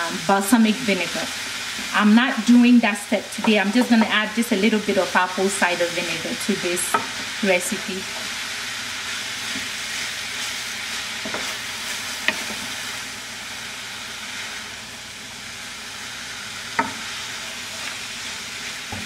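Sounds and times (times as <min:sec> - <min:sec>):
vegetables sizzling in a pan: 0:00.0 - 0:19.0
spoon knocking against pan: 0:16.8 - 0:17.0.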